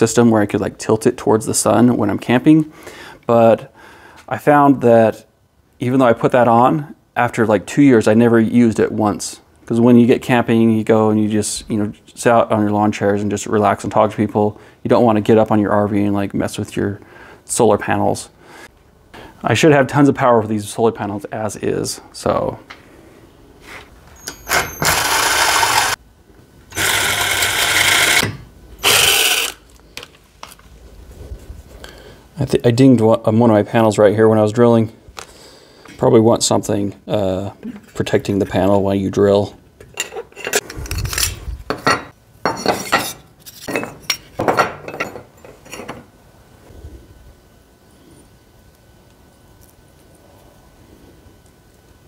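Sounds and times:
cordless drill boring through metal: 24.2s - 26.0s, 26.7s - 29.6s.

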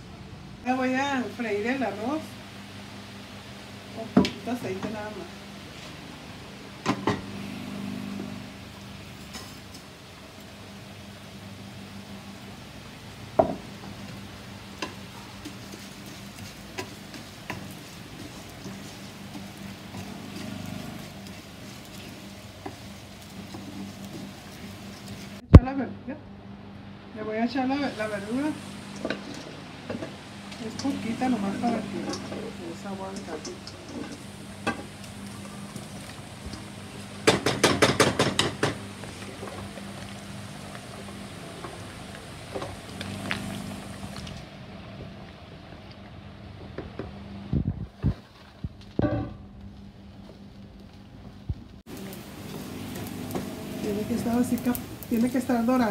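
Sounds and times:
rice crackling in a frying pan: 0.6s - 25.5s, 27.7s - 55.9s
wooden spoon scraping a pan: 14.7s - 25.4s, 28.0s - 44.3s
sharp taps on a pan: 37.2s - 38.8s.

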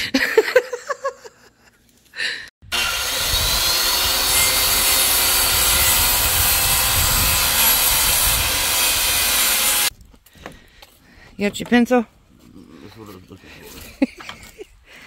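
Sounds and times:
power saw cutting wood: 2.6s - 9.9s.

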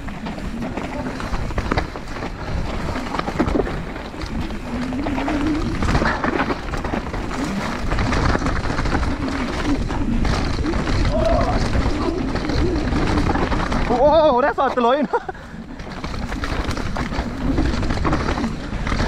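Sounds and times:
bike clattering: 0.0s - 19.0s
bike tyre noise on dirt: 0.0s - 19.0s.

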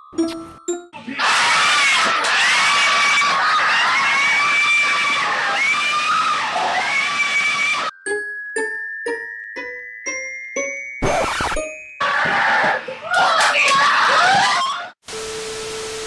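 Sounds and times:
chime notes: 0.0s - 1.0s, 7.9s - 12.1s
men screaming in excitement: 1.1s - 7.9s, 12.0s - 14.9s.

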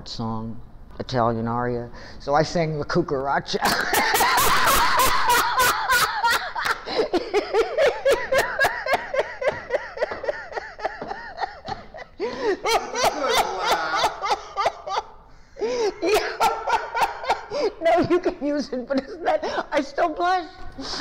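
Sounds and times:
woman laughing heartily: 3.6s - 19.8s.

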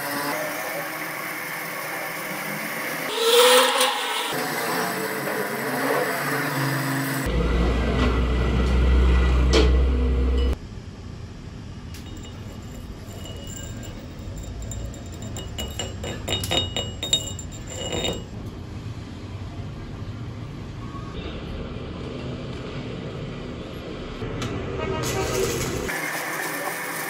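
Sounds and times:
steady low hum: 10.4s - 18.4s
hammer clinking on metal: 12.0s - 18.4s.

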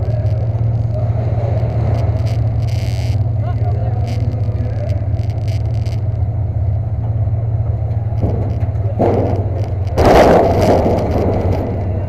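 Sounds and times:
truck engine idling: 0.0s - 12.0s
bangs on sheet-metal body: 8.2s - 11.8s.

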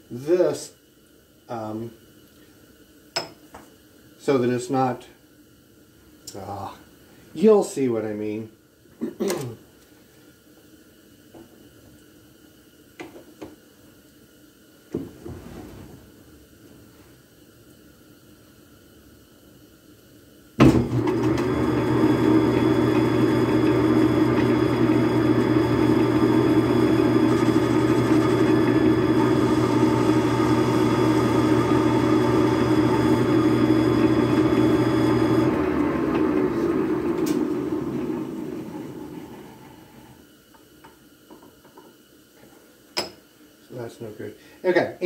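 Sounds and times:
lathe motor humming and whining: 20.8s - 40.2s.

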